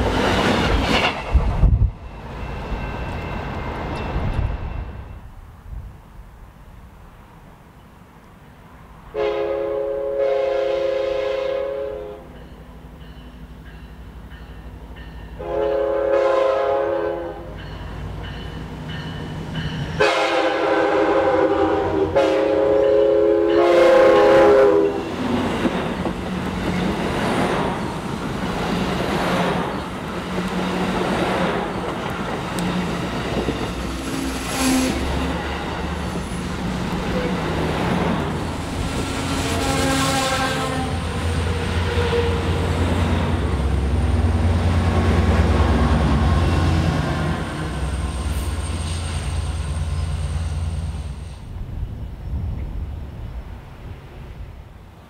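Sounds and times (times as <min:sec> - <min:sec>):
clickety-clack of wheels: 0:00.0 - 0:01.8
train rumble and wheel noise: 0:00.0 - 0:55.0
train air horn blasts: 0:09.1 - 0:12.4, 0:15.4 - 0:17.6, 0:20.0 - 0:25.2, 0:39.1 - 0:42.7.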